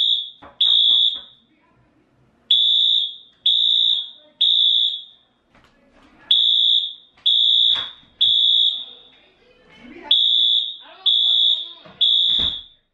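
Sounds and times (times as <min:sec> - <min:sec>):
fire alarm beeps: 0:00.0 - 0:01.4, 0:02.5 - 0:05.2, 0:06.3 - 0:09.0, 0:10.1 - 0:12.9.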